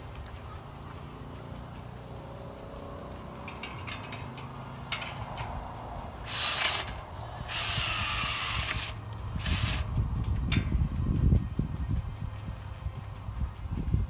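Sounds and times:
light metal clicks: 3.4s - 6.2s
cordless drill driving fastener: 6.2s - 9.9s.

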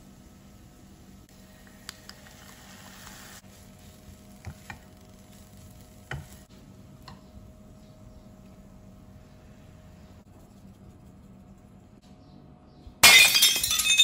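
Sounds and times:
faint patter of salt: 1.4s - 6.5s.

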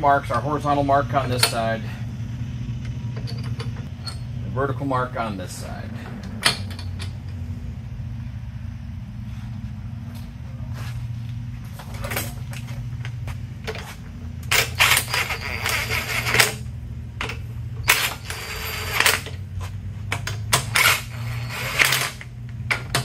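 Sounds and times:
steady low hum: 0.0s - 23.0s
metal parts clinking: 3.1s - 4.4s, 6.4s - 7.4s
impact wrench rattling bursts: 13.6s - 23.0s.

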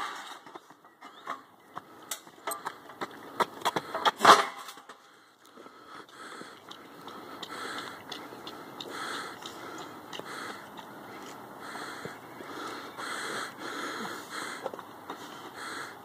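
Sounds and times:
metal clank on asphalt: 0.0s - 5.1s.

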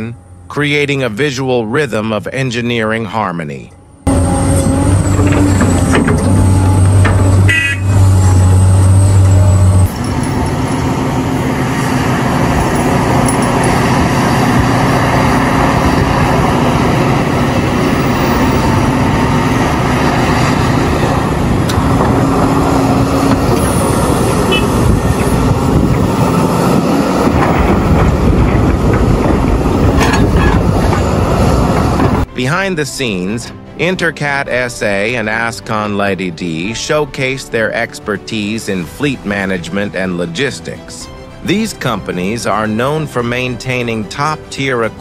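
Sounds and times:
excavator diesel engine rumble: 3.6s - 37.1s.

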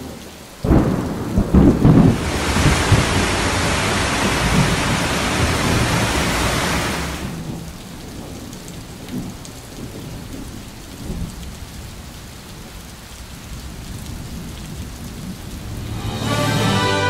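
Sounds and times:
rush of water: 0.0s - 17.0s
steady rain: 0.0s - 17.0s
low thunder rumbles: 0.6s - 12.7s.

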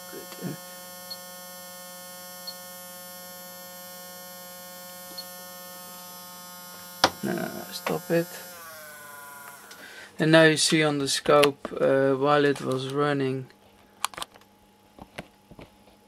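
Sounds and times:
electric toothbrush motor humming: 0.0s - 10.4s.

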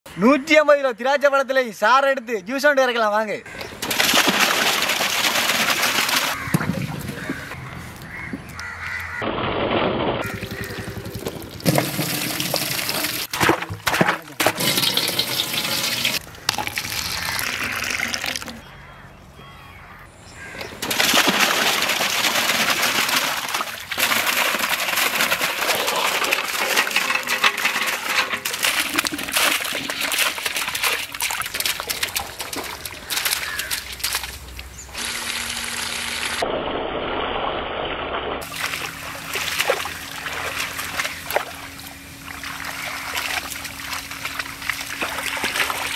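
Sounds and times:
water running and splashing: 3.8s - 7.6s, 10.2s - 18.6s, 20.8s - 36.4s, 38.4s - 45.9s.

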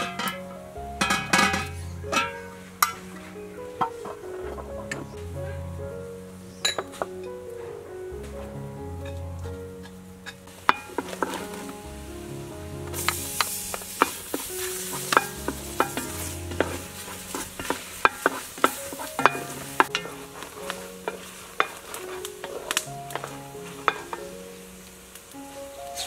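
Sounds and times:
paste sizzling: 10.5s - 26.0s
spatula scraping metal pot: 13.0s - 24.2s.

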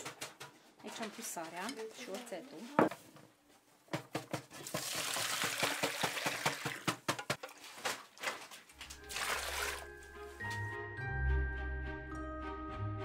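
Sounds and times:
water pouring: 4.6s - 6.8s, 7.4s - 10.0s
background music: 8.8s - 13.0s.

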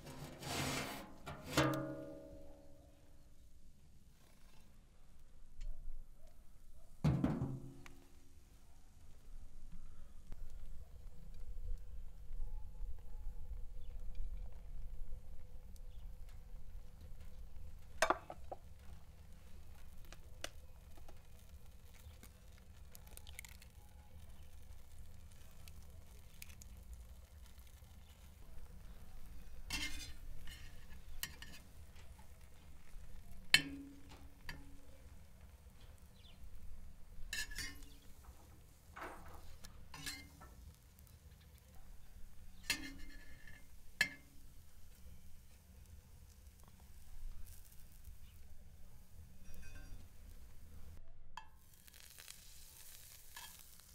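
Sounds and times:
food sizzling and crackling: 17.6s - 33.7s, 34.3s - 53.9s
metal utensil clinking cookware: 39.9s - 40.4s.

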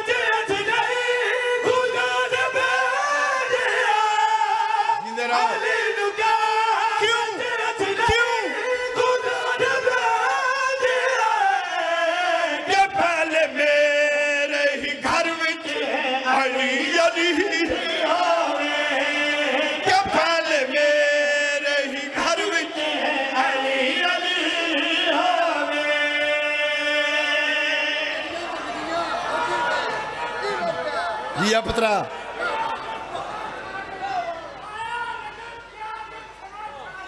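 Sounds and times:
men chanting into microphones: 0.0s - 37.0s.

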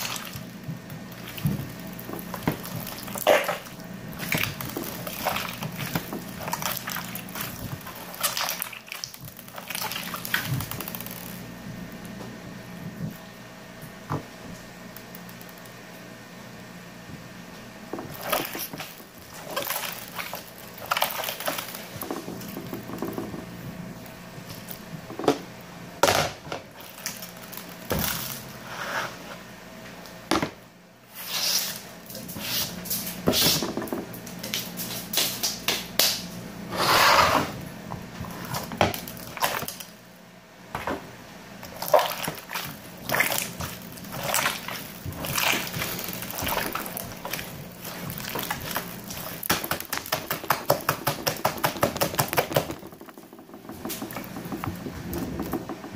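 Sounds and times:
wet squishing of slime: 0.0s - 12.0s, 17.8s - 25.6s, 26.7s - 28.6s, 38.1s - 40.0s, 41.5s - 55.9s
low steady hum: 37.4s - 55.9s.

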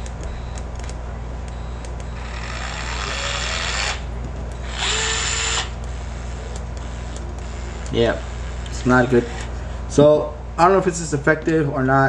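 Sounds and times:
cordless screwdriver motor whirring: 2.2s - 9.5s.

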